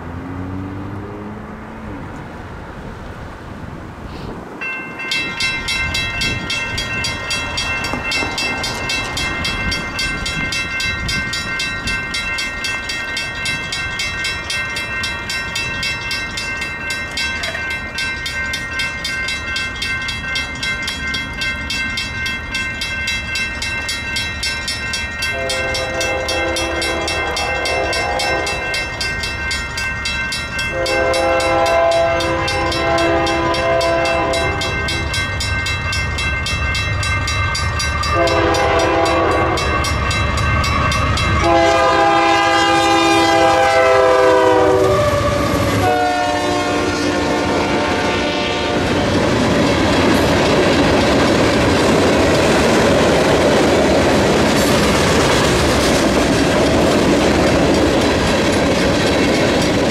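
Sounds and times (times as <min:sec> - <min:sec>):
railroad crossing bell ringing: 0:04.6 - 0:59.9
train horn blasts: 0:25.2 - 0:28.8, 0:30.6 - 0:35.2, 0:38.0 - 0:40.0, 0:41.2 - 0:49.2.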